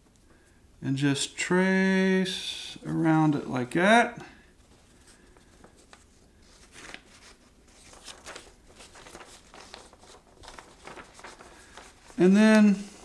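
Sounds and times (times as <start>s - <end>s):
paper rustling and crinkling: 4.6s - 13.0s.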